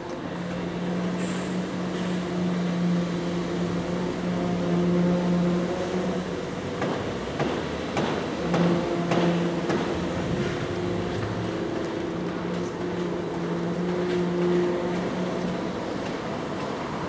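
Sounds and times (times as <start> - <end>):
machinery humming: 0.0 - 17.0
sharp knocks: 6.8 - 10.0.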